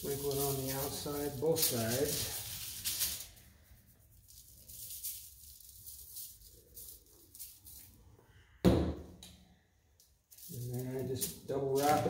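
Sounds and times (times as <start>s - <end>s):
seasoning shaker rattling: 0.0s - 8.0s.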